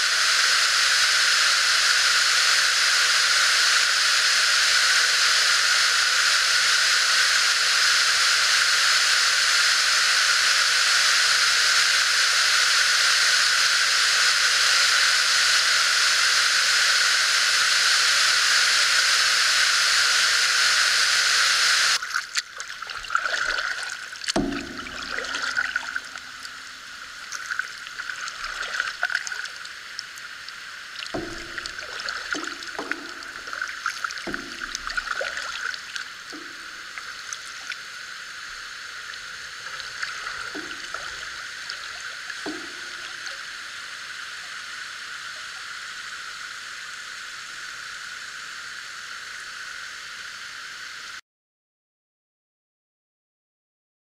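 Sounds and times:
water dripping off paddle: 22.0s - 43.6s
waterfall rushing: 23.2s - 43.8s
paddle knocking against canoe: 24.4s - 26.1s, 31.1s - 35.6s, 40.0s - 43.4s.

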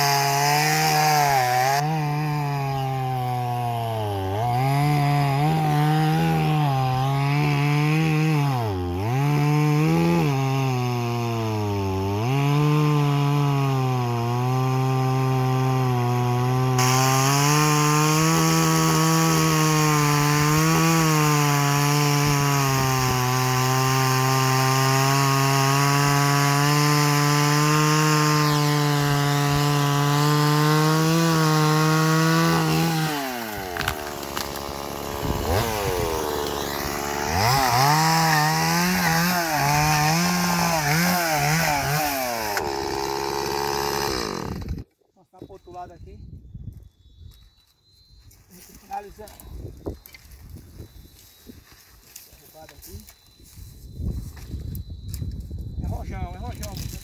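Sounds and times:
chainsaw cutting wood: 0.0s - 44.9s, 56.5s - 57.0s.

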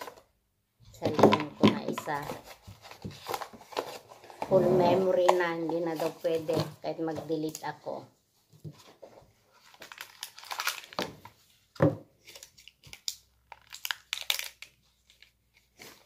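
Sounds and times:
plastic packaging crinkling: 9.5s - 11.5s, 12.2s - 16.0s.

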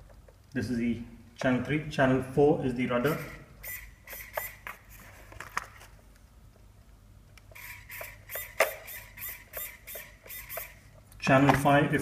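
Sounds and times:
servos whirring: 3.0s - 5.2s, 7.4s - 11.0s.

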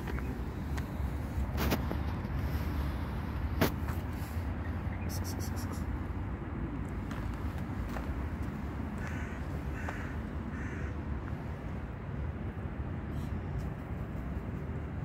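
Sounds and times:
steady low rumble: 0.0s - 15.0s
crow cawing: 9.0s - 11.1s.

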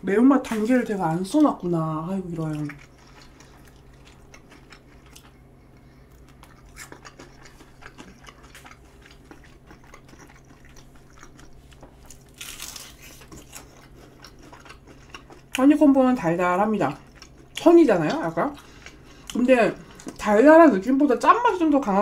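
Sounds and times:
faint low hum: 0.0s - 22.0s
chewing: 2.3s - 15.7s, 16.8s - 20.2s
crunchy bite into fried chicken: 12.1s - 13.9s.

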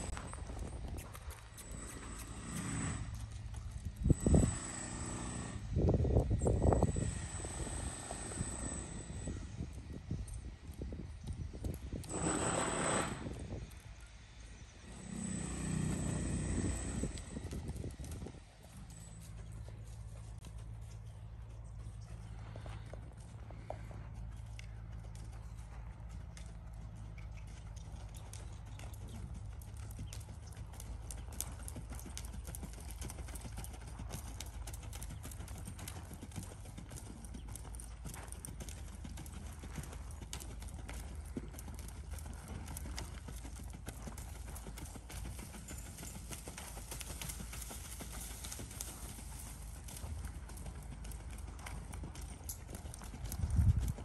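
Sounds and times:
hoofbeats on sand: 11.2s - 13.5s, 14.8s - 54.0s.

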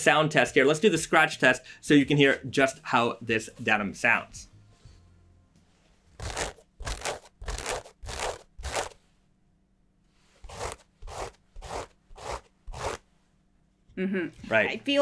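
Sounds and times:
denim scratched by hand: 6.0s - 9.2s, 10.1s - 13.3s.

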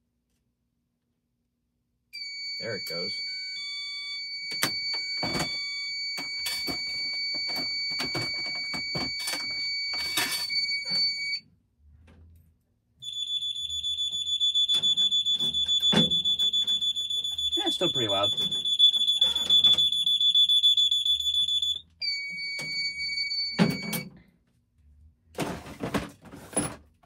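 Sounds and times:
rapidly pulsing alarm tone: 2.2s - 11.4s, 13.0s - 24.0s
steady high alarm tone: 2.2s - 11.4s, 13.0s - 24.1s.

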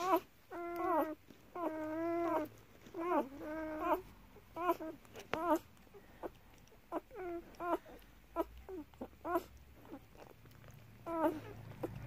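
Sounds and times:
puppies squeaking and whimpering: 0.0s - 12.0s.

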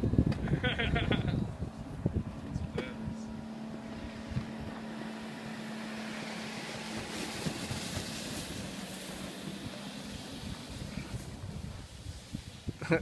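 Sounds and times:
steady low hum: 0.0s - 12.2s
wind rumble on microphone: 0.0s - 13.0s
snow tubes sliding over snow: 5.3s - 13.0s.

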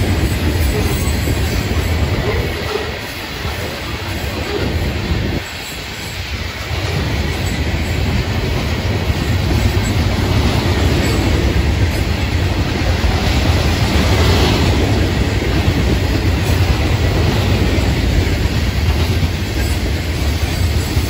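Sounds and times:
freight train wheels rumbling on rails: 0.0s - 21.0s.

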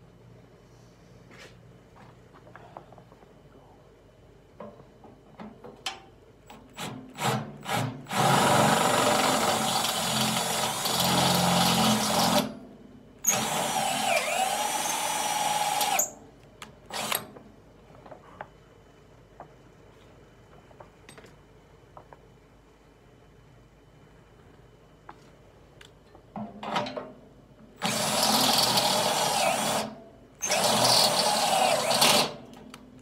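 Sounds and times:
cordless drill boring into steel: 7.2s - 12.5s, 13.2s - 16.2s, 16.9s - 17.2s, 27.8s - 32.4s.

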